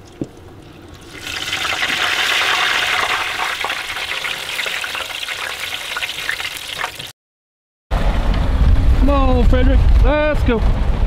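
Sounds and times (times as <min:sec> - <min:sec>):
fish sizzling in hot oil: 0:01.0 - 0:07.1.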